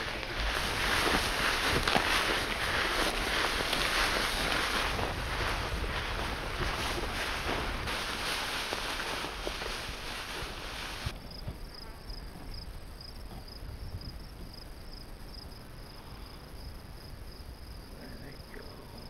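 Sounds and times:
footsteps rustling through tall grass: 0.0s - 11.1s
insects chirping: 0.0s - 19.0s.

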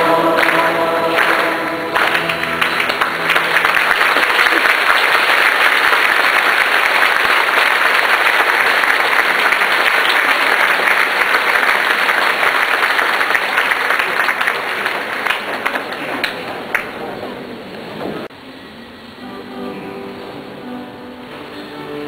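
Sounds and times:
crowd applauding: 0.3s - 17.0s.

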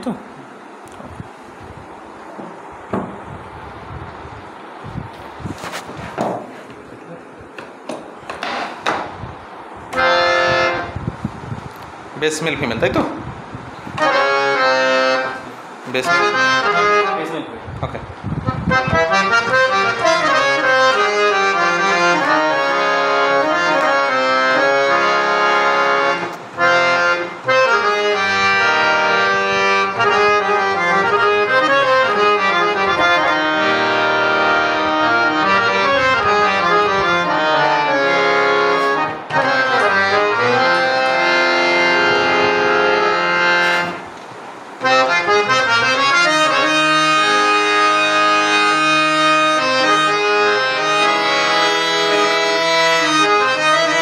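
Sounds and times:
harmonium melody: 9.4s - 11.8s, 13.8s - 17.6s, 18.4s - 54.0s.

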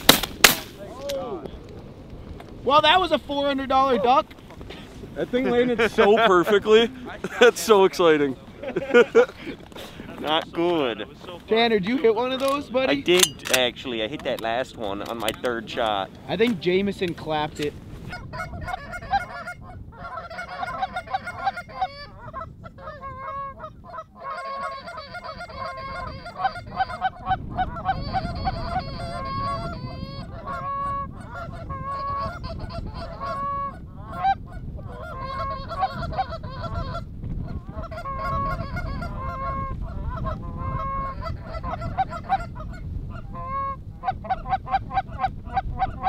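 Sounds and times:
wind rumble on microphone: 0.0s - 46.0s
geese honking and clucking: 18.0s - 46.0s.

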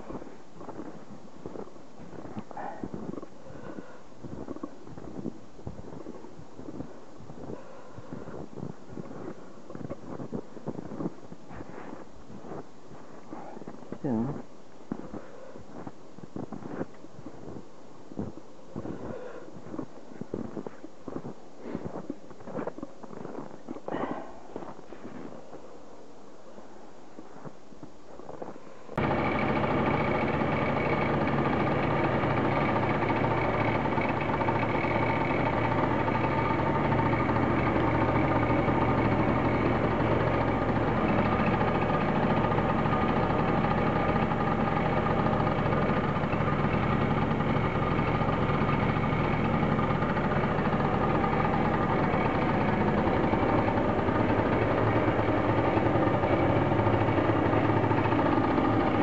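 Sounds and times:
scooter engine running: 29.0s - 59.0s.

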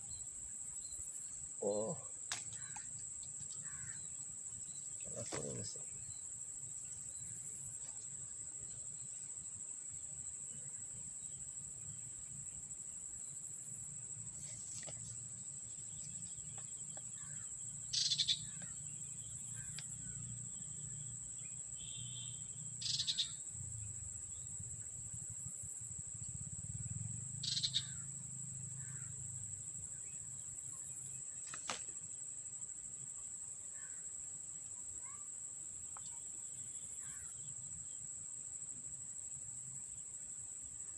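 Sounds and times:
insects trilling: 0.0s - 40.9s
loud bird calls: 16.6s - 18.8s, 21.9s - 23.4s, 27.4s - 28.1s.

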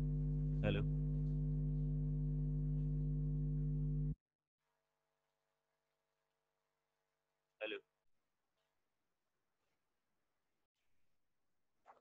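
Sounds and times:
steady electrical hum: 0.0s - 4.2s.

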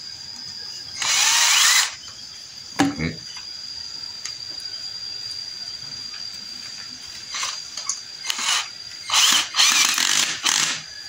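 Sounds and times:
cordless drill driving a screw: 1.0s - 2.0s, 7.3s - 10.8s.

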